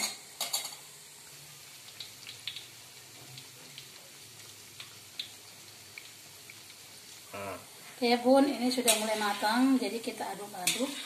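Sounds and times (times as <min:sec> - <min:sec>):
dough deep-frying in oil: 0:00.0 - 0:11.0
small oil crackles: 0:01.4 - 0:11.0.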